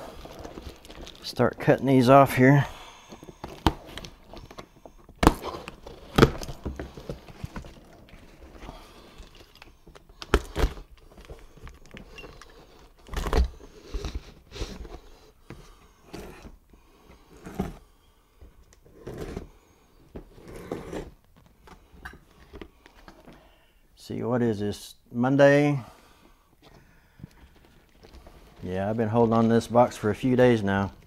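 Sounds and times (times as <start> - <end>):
scraping and rustling on cardboard: 3.2 - 17.9, 18.8 - 21.2.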